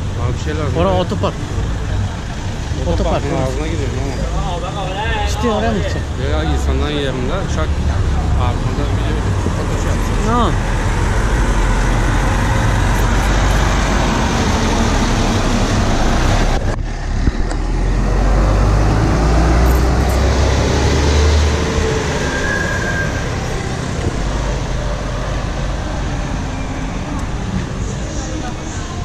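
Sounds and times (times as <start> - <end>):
bus driving past: 0.0 - 29.0
road traffic: 0.0 - 29.0.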